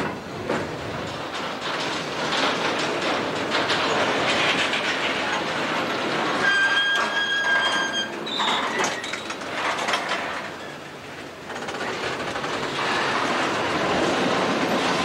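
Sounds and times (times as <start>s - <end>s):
clicking over rail joints: 0.0s - 15.0s
steel wheels rumbling on rail: 0.0s - 15.0s
wheel squealing: 6.3s - 9.3s.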